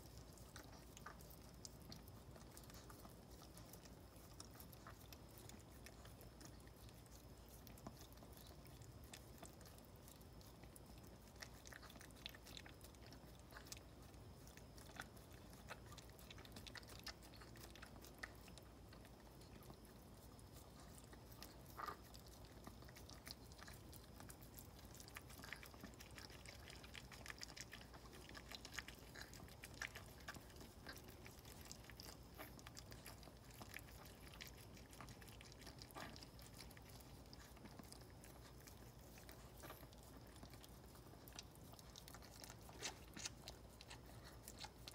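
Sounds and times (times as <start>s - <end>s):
dog licking puppy: 0.0s - 44.9s
small mouth clicks: 41.1s - 44.9s.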